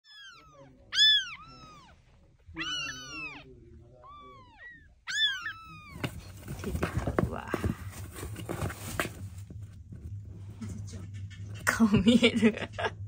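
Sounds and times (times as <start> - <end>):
kittens mewing: 0.0 - 6.4
scratchy rustling: 5.6 - 11.6.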